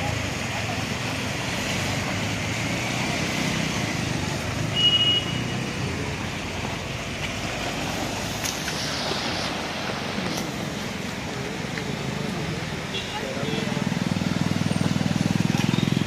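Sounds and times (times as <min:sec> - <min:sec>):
tyres swishing through water: 0:00.0 - 0:16.0
vehicle engines humming: 0:00.0 - 0:16.0
short high horn beep: 0:04.8 - 0:05.6.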